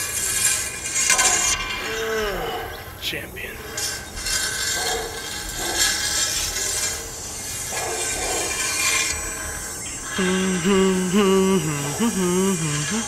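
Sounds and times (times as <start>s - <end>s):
loud rasping scraping noise: 0.0s - 13.0s
wavering voice-like sound: 1.8s - 3.7s, 10.1s - 13.0s.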